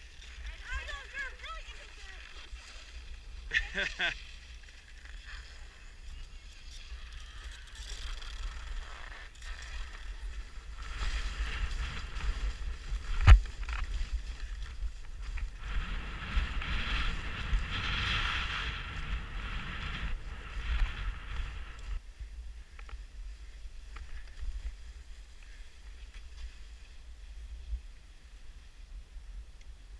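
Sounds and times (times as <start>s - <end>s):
skis scraping through snow: 0.0s - 29.9s
wind rumble on microphone: 5.2s - 29.9s.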